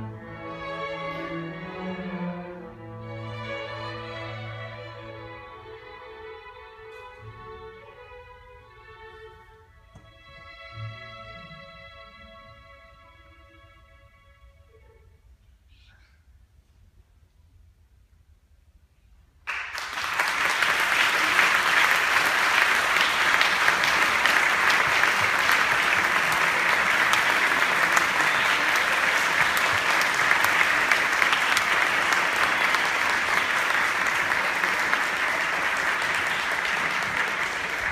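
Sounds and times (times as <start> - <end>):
large audience applauding: 19.4 - 37.9.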